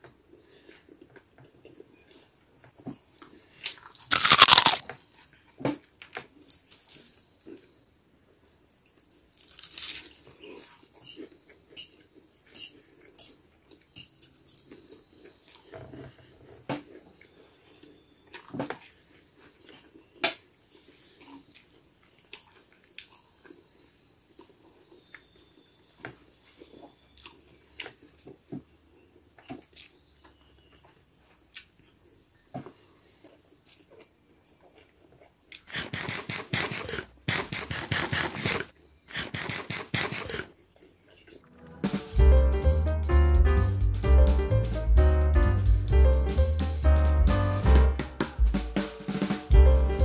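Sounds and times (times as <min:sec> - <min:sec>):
chewing: 0:03.1 - 0:05.5, 0:08.7 - 0:37.8, 0:38.6 - 0:41.7
crunchy bites of toast: 0:03.6 - 0:05.0, 0:09.3 - 0:11.0.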